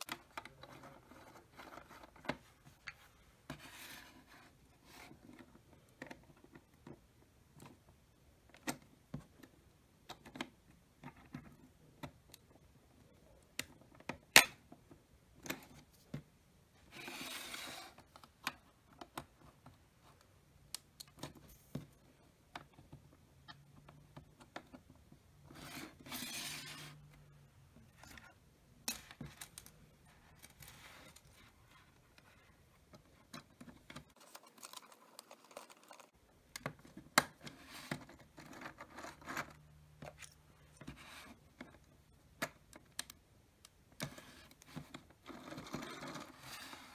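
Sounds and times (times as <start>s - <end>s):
plastic pieces rustling and scraping: 34.1s - 36.2s.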